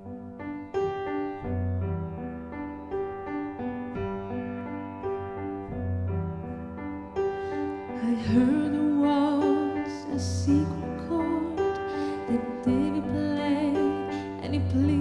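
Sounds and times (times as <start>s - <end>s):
grand piano playing chords: 0.0s - 15.0s
woman singing: 7.9s - 15.0s.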